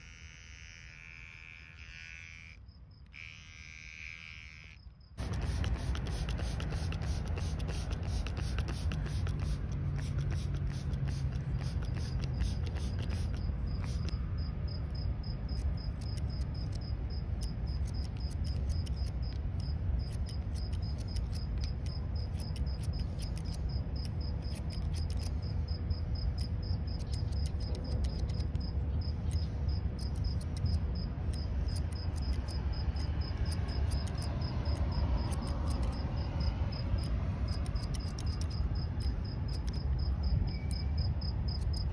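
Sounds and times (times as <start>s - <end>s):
insect chirping: 0.0s - 41.9s
scissors snipping hair: 5.2s - 14.3s, 15.2s - 25.6s, 26.2s - 39.9s.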